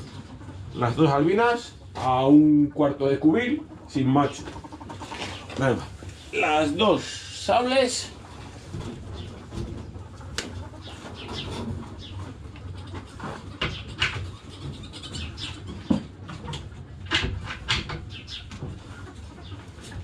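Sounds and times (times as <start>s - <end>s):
birds chirping: 3.4s - 16.1s, 18.0s - 19.6s.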